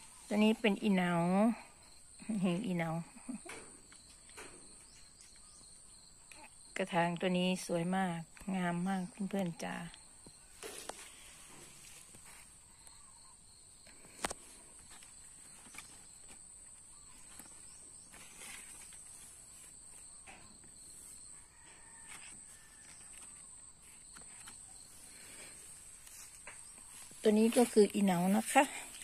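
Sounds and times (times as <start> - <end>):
insects chirring: 0.0 - 29.0
faint clicks and rustles: 8.3 - 29.0.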